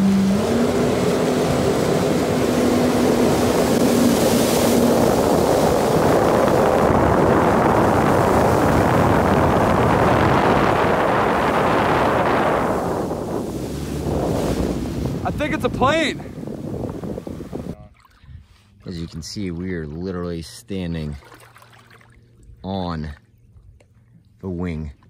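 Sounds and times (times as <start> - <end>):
jet ski engine: 0.0 - 17.8, 18.8 - 24.9
water rushing: 0.0 - 18.1
wind on microphone: 0.0 - 18.5.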